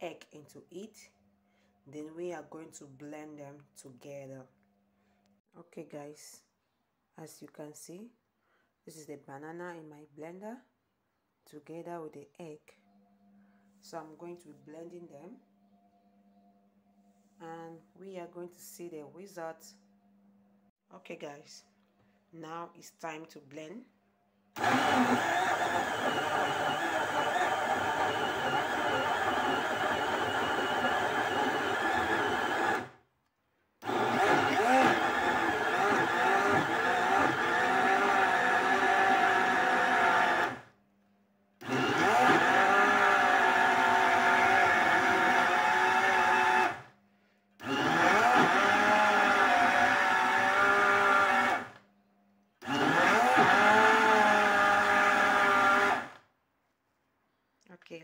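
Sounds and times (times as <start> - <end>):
blender motor whine: 24.6 - 33.0, 33.8 - 40.7, 41.6 - 46.9, 47.6 - 51.8, 52.6 - 56.2.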